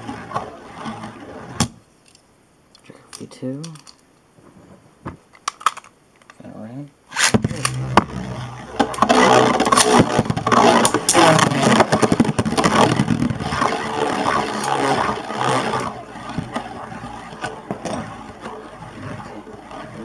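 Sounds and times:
spinning tops whirring and grinding: 0:00.0 - 0:01.7, 0:07.1 - 0:20.0.

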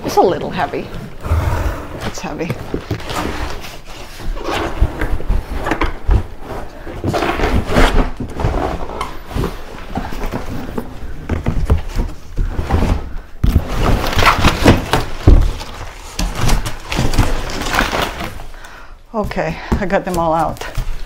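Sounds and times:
cardboard scraping and rustling: 0:02.0 - 0:18.5
cardboard knocks and thuds: 0:04.6 - 0:18.3.

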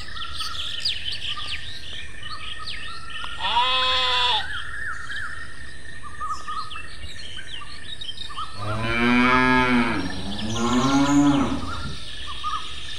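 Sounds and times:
birds chirping: 0:00.0 - 0:12.9
cow mooing: 0:08.6 - 0:12.0.

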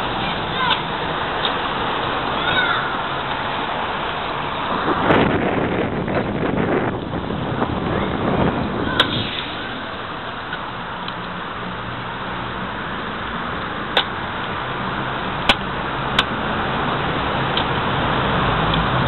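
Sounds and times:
cars driving past: 0:00.0 - 0:19.0.

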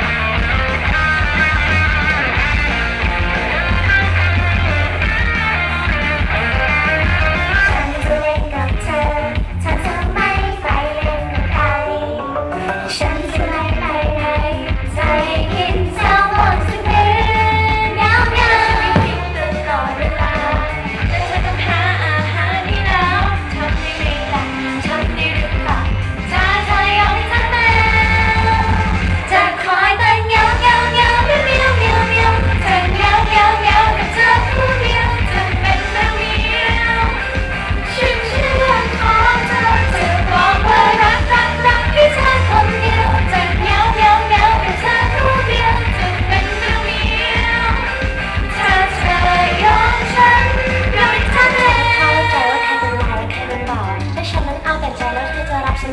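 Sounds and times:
pop backing track with beat: 0:12.2 - 0:29.4
female voices singing: 0:12.9 - 0:37.2, 0:37.8 - 0:55.9.

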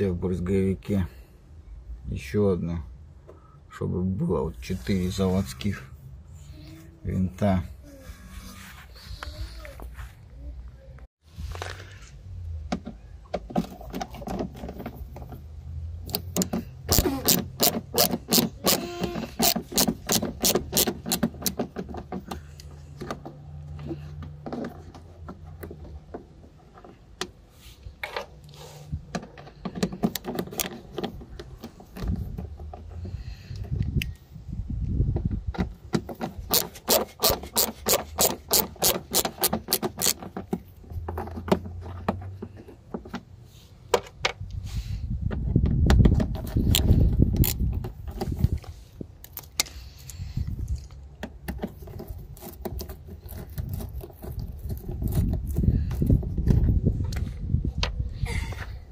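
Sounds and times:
hand ratchet clicking: 0:36.5 - 0:40.2.

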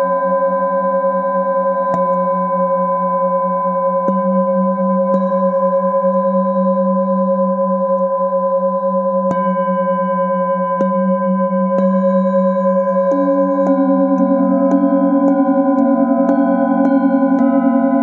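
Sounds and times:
singing bowls droning: 0:00.0 - 0:18.0
mallet striking singing bowl: 0:12.9 - 0:18.0.

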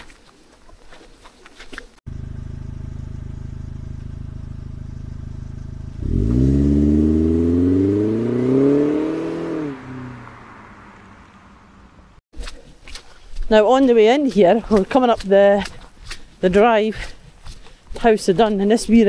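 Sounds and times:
car engine accelerating: 0:02.1 - 0:12.2.

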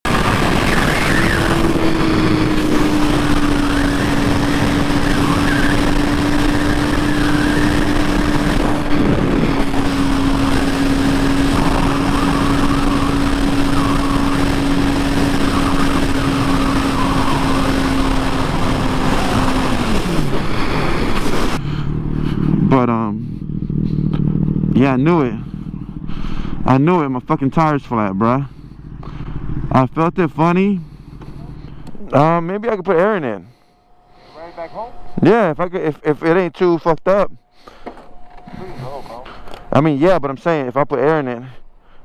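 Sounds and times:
motorcycle engine: 0:00.0 - 0:40.5
wind rushing on microphone: 0:00.1 - 0:21.6.

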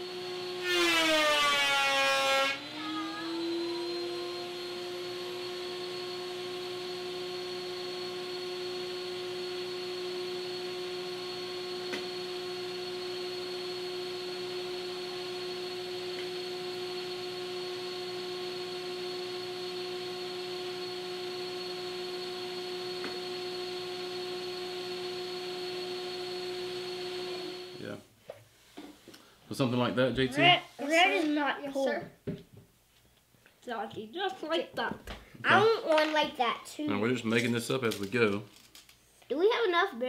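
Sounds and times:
electric motor humming: 0:00.0 - 0:28.0.

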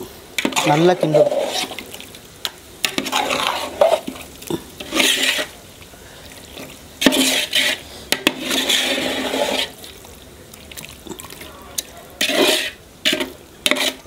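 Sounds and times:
spoon scraping metal pot: 0:00.4 - 0:01.9, 0:02.8 - 0:05.6, 0:06.5 - 0:09.9, 0:12.2 - 0:14.0.

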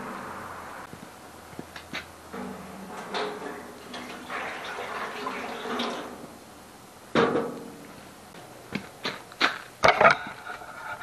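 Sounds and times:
water pouring into metal pan: 0:03.4 - 0:06.3.

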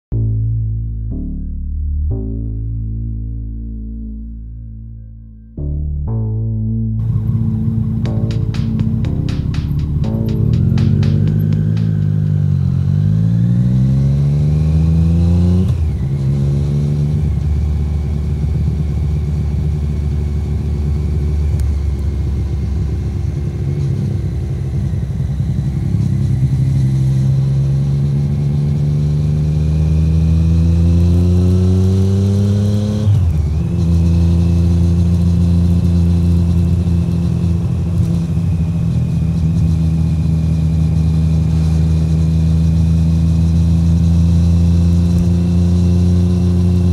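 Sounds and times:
motorcycle engine revving and shifting: 0:07.0 - 0:46.9.

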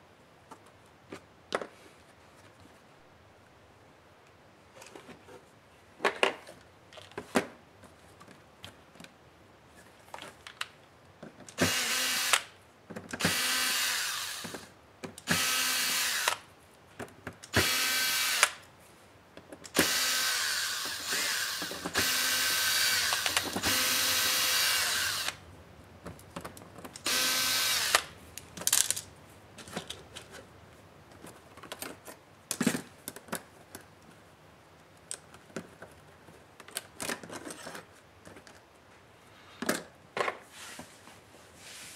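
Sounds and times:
electric screwdriver running: 0:11.6 - 0:12.5, 0:13.2 - 0:14.6, 0:15.3 - 0:16.4, 0:17.5 - 0:18.6, 0:19.8 - 0:25.4, 0:27.0 - 0:28.1.

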